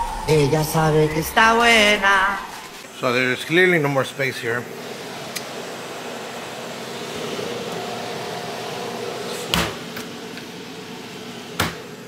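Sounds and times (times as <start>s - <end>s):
refrigerator hum: 3.6s - 12.0s.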